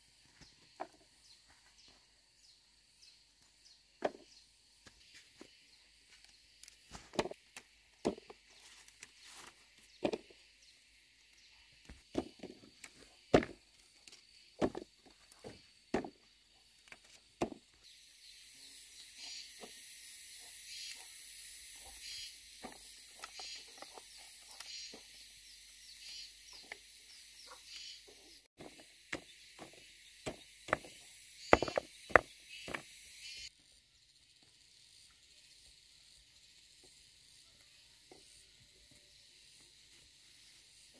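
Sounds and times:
sharp knocks: 28.6s - 32.8s.

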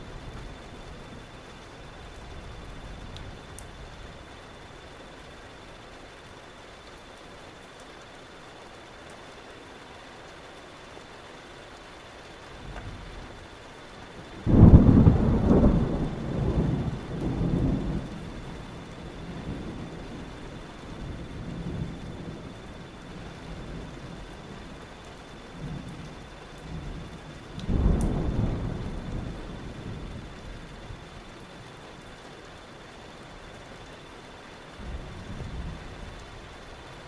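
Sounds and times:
steady rain: 0.0s - 37.0s
thunder clap and rumble: 14.2s - 31.4s, 34.8s - 37.0s.

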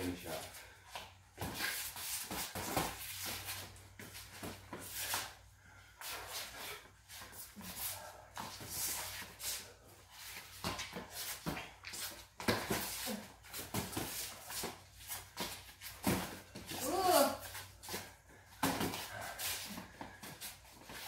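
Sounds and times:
boxing glove impacts: 10.6s - 17.1s, 18.6s - 20.4s.

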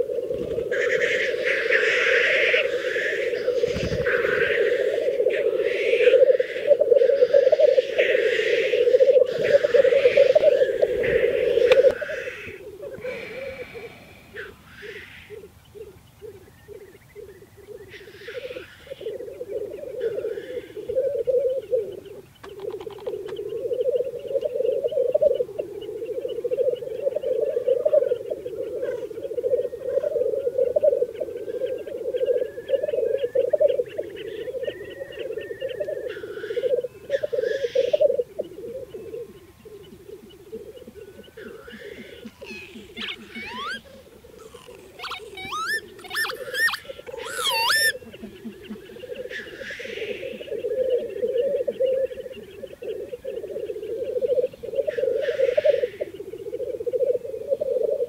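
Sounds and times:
grouse bubbling display song: 0.0s - 13.7s, 14.4s - 58.0s
rising whistled bird calls: 31.8s - 38.0s, 41.0s - 48.1s
short hissing bird call: 44.4s - 47.9s.

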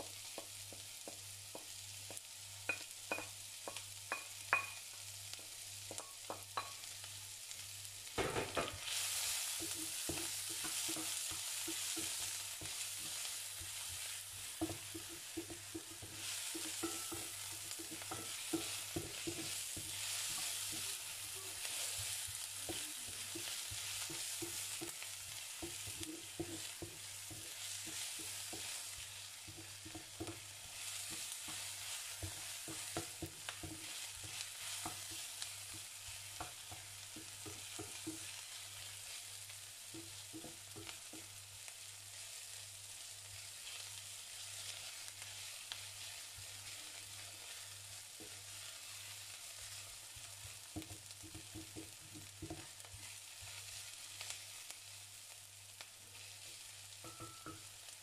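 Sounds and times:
onion sizzling in oil: 0.0s - 58.0s
spatula knocking against pan: 0.2s - 6.8s, 8.2s - 8.8s, 9.6s - 21.0s, 22.2s - 38.4s, 39.9s - 41.4s, 50.6s - 52.7s, 57.0s - 57.7s.

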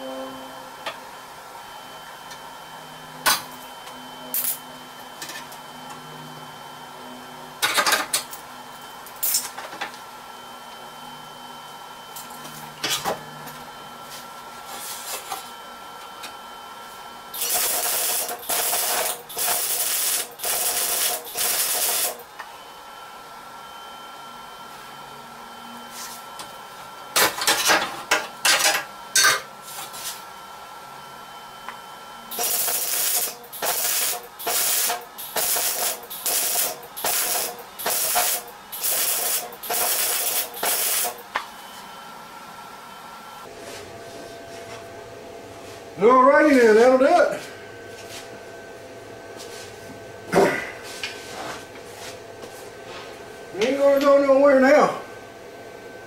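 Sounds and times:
welding crackle and hiss: 17.4s - 22.3s, 32.3s - 41.3s.

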